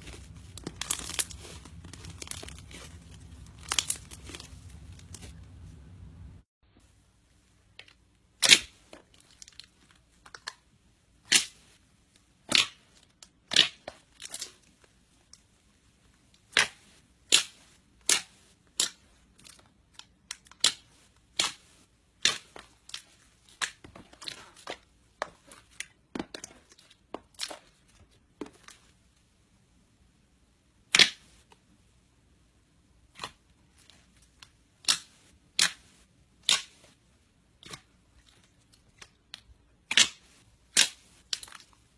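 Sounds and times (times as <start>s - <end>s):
slime popping and crackling: 0.0s - 6.3s, 34.7s - 37.0s, 37.6s - 41.9s.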